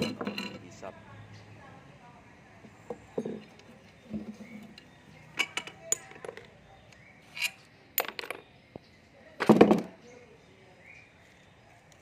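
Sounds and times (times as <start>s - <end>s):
metal tools clinking: 0.0s - 0.7s, 4.2s - 6.5s, 7.3s - 8.4s.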